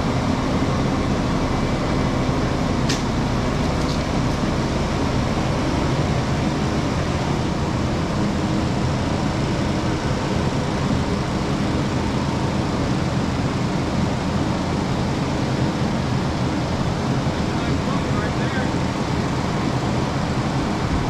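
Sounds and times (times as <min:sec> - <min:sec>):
diesel engine and mulching head din: 0:00.0 - 0:21.0.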